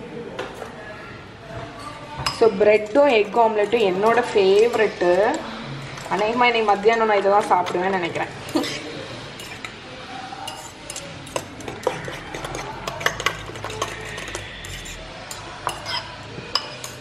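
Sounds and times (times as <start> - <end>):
fork beating eggs in a bowl: 2.8 - 7.9, 10.4 - 17.0.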